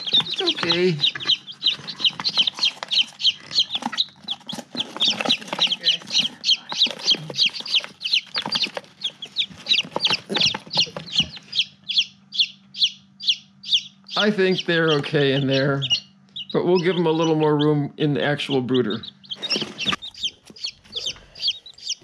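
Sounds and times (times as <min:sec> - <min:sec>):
cardboard box rustling and knocking: 0:00.0 - 0:11.4
chicks peeping: 0:00.0 - 0:22.0.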